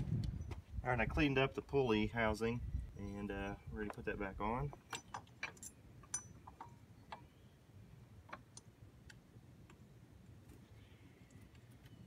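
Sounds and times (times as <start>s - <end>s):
small metallic clicks: 4.7s - 7.3s.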